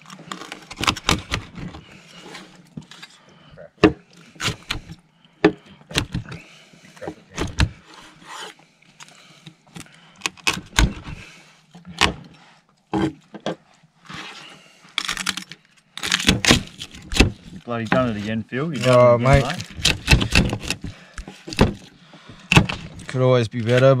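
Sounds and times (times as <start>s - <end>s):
scraping and crunching crackling: 0.0s - 3.4s, 14.1s - 24.0s.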